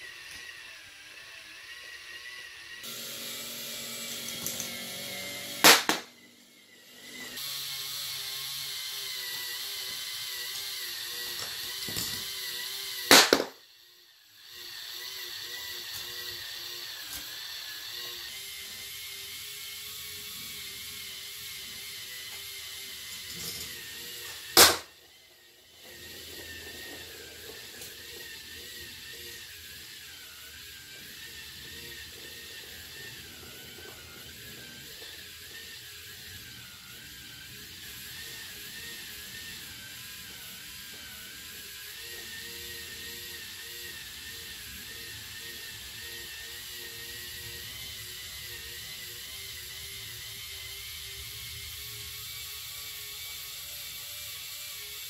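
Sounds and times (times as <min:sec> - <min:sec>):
motor whine: 0:00.0 - 0:55.0
sharp loud click: 0:24.6 - 0:24.9.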